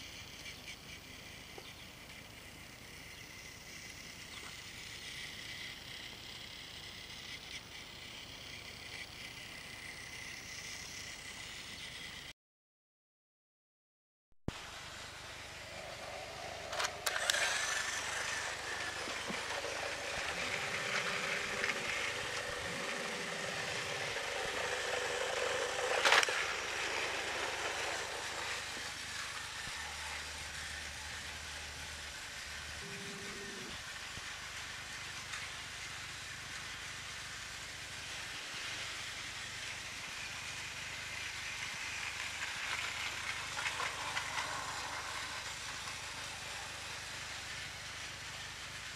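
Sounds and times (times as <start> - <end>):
toy train motor running: 0.0 - 12.3, 14.6 - 48.9
wheels rattling on track: 14.8 - 48.9.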